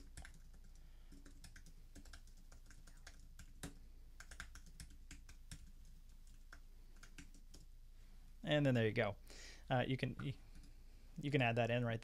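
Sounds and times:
typing on computer keyboard: 0.0s - 7.7s.

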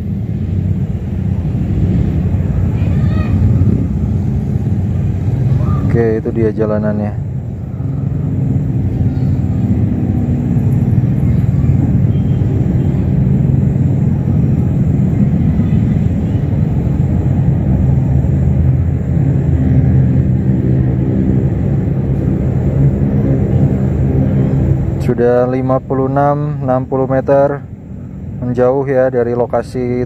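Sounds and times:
steady low rumble: 0.0s - 30.0s.

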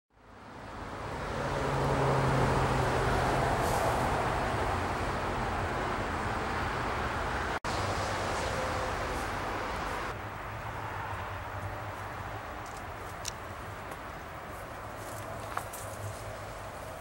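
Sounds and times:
traffic tyre noise: 0.1s - 17.0s.

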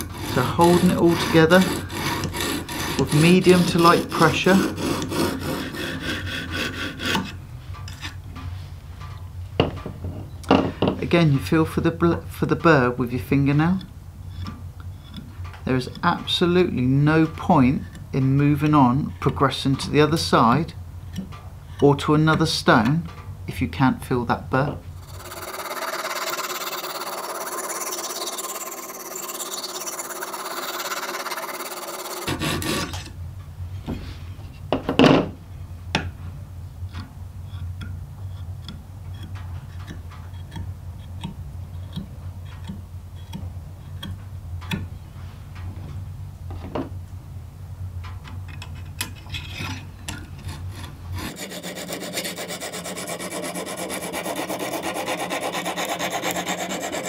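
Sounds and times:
stone rasping on knife edge: 0.0s - 8.2s, 25.0s - 33.1s, 50.4s - 57.0s.

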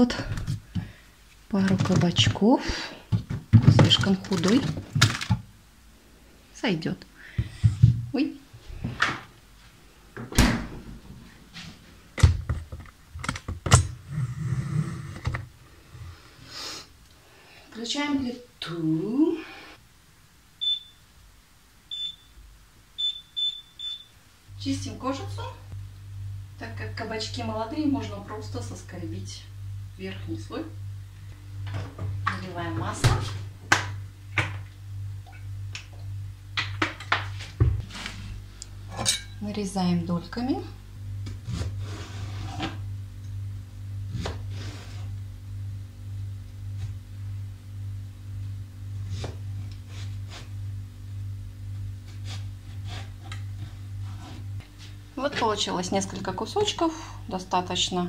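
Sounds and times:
steady low hum: 0.0s - 58.0s
refrigerator door thudding shut: 10.2s - 10.9s.

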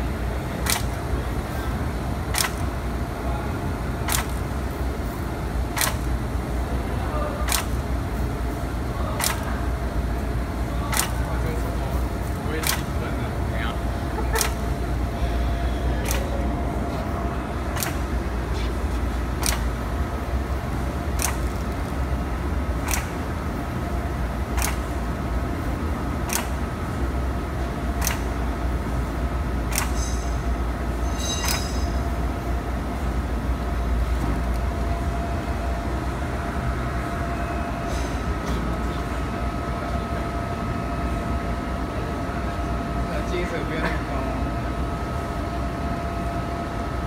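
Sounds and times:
labeling machine rumble and whine: 0.0s - 47.0s
sharp machine clicks: 0.6s - 1.2s, 2.2s - 2.9s, 4.0s - 4.7s, 5.6s - 6.3s, 7.4s - 7.9s, 9.1s - 9.7s, 10.8s - 13.2s, 14.3s - 15.0s, 16.0s - 16.5s, 17.7s - 18.2s, 19.3s - 23.8s, 24.4s - 27.1s, 27.7s - 28.6s, 29.6s - 32.2s.

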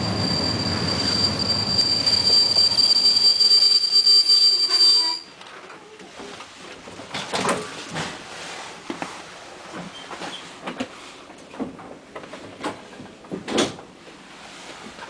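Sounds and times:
train wheels squealing on rails: 0.0s - 5.4s.

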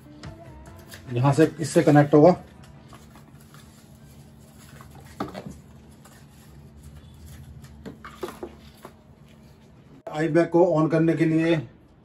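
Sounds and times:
paper and cable rustling: 0.7s - 9.8s.

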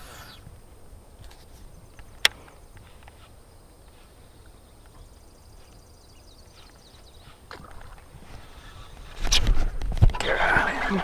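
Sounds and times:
faint bird chirps: 0.0s - 0.5s, 1.5s - 8.9s
wind rumble on microphone: 6.5s - 11.0s.

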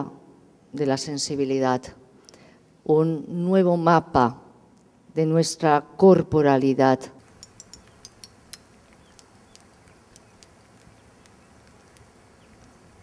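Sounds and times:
low hiss: 0.0s - 13.0s
sharp high clicks: 7.2s - 12.8s.

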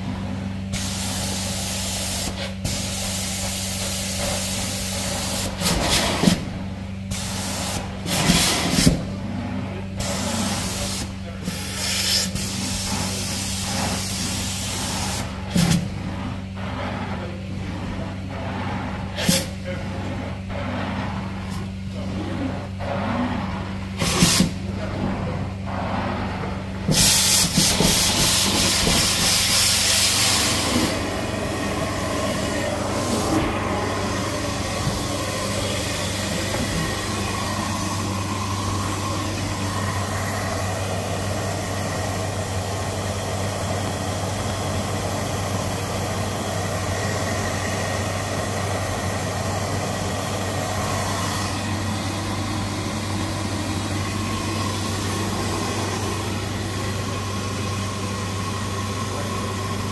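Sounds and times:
carpet cleaner suction hiss: 0.7s - 6.4s, 7.1s - 8.9s, 26.9s - 59.9s.

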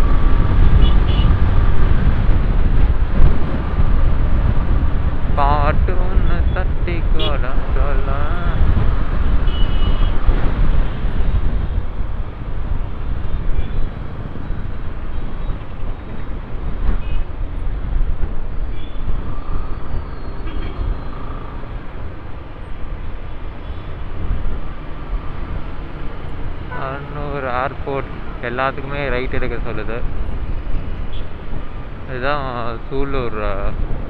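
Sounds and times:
wind buffeting microphone: 0.0s - 23.3s
road traffic: 0.0s - 34.0s.

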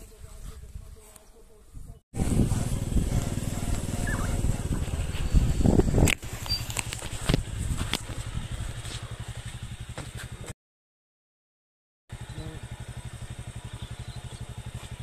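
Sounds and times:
motorcycle engine running: 2.2s - 10.6s, 12.1s - 15.0s.

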